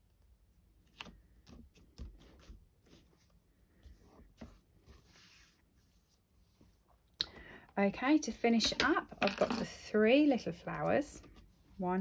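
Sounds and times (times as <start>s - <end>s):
soft paper rustle: 0.8s - 7.0s.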